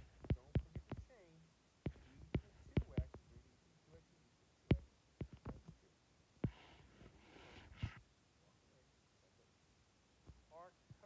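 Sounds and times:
stylus tapping on glass screen: 0:00.0 - 0:01.1, 0:01.9 - 0:03.2, 0:04.7 - 0:05.7.

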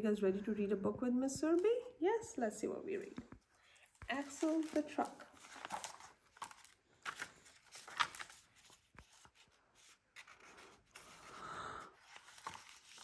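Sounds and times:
book pages rustling: 0:03.0 - 0:13.0.

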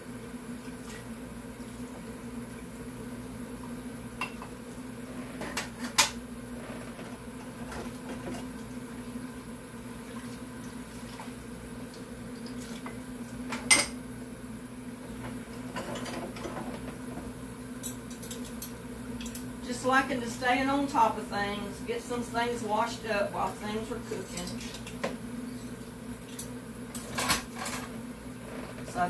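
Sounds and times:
steady background hum: 0:00.0 - 0:29.0
dishes and cutlery clinking in sink: 0:12.4 - 0:14.0, 0:15.7 - 0:17.0, 0:17.8 - 0:19.4, 0:24.2 - 0:25.1, 0:26.2 - 0:27.9.

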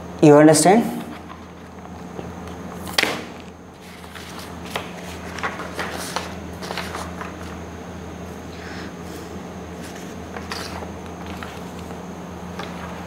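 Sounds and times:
steady low hum: 0:00.0 - 0:13.0
paper rustling and tapping: 0:01.2 - 0:07.6, 0:09.8 - 0:13.0.

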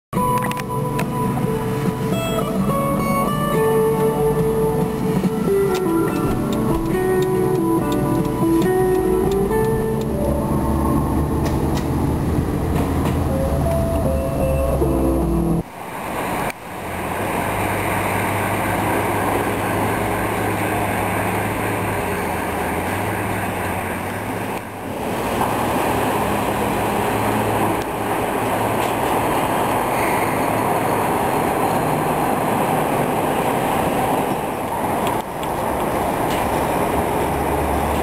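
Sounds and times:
vehicle engines and traffic rumble: 0:00.2 - 0:38.0.

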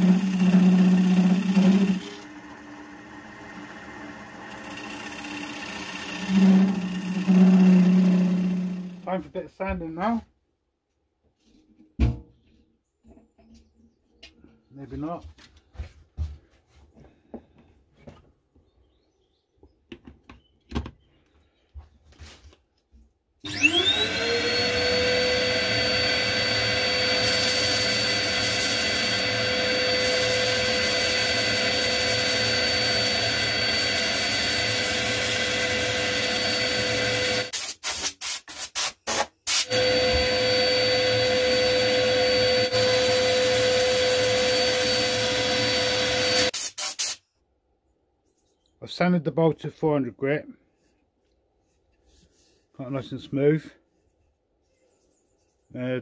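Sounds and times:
drill motor whining: 0:00.0 - 0:09.1, 0:23.4 - 0:37.5, 0:39.5 - 0:46.6.

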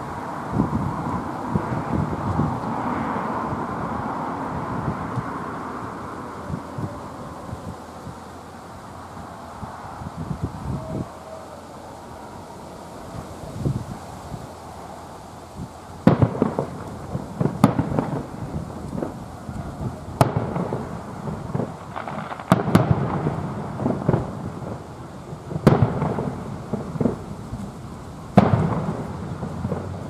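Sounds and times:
low rolling rumble: 0:00.0 - 0:30.0
distant fireworks bangs: 0:16.0 - 0:30.0.

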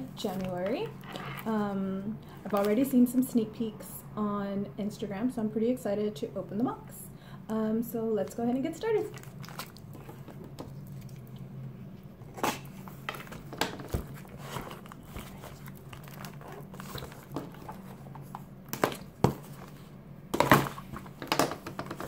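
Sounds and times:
low steady hum: 0:00.0 - 0:22.0
cardboard box rustling and scraping: 0:13.2 - 0:18.2.

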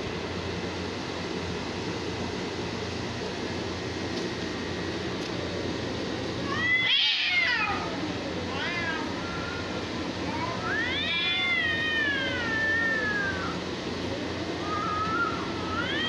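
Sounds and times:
cats yowling: 0:06.4 - 0:16.0.

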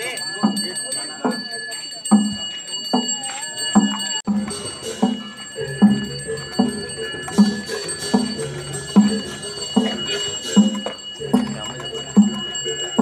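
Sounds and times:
gamelan metal percussion strokes: 0:00.0 - 0:13.0
high bell-like ringing: 0:00.0 - 0:13.0.

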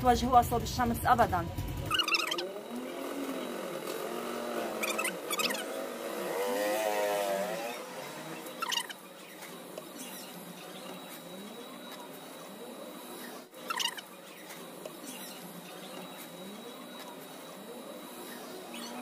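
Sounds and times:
short squeaky scrapes: 0:01.9 - 0:02.6, 0:04.6 - 0:05.8, 0:07.4 - 0:11.2, 0:13.2 - 0:16.3.

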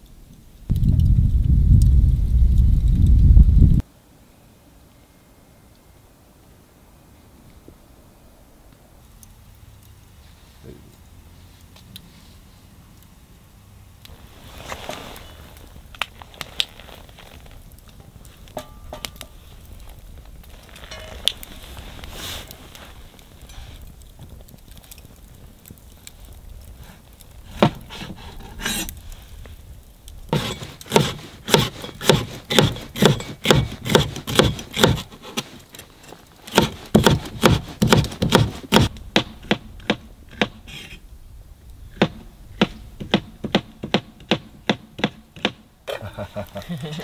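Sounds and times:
hand tool scraping wood: 0:27.5 - 0:28.9, 0:30.3 - 0:41.0.

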